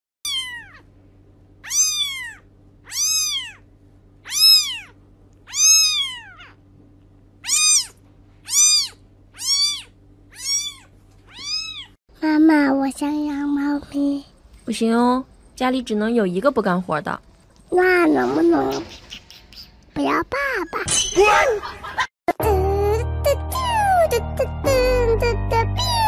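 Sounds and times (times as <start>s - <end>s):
cat meowing: 0.2s - 0.9s, 1.6s - 3.6s, 4.2s - 6.6s, 7.4s - 12.0s.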